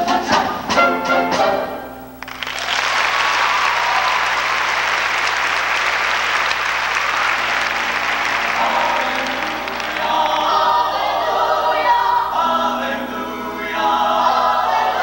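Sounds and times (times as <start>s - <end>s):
choir and band music: 0.0s - 2.3s, 6.0s - 15.0s
audience applause: 2.2s - 10.8s.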